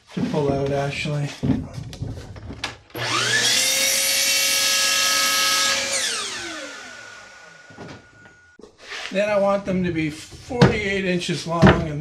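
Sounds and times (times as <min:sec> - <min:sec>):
miter saw running: 0:03.0 - 0:08.2.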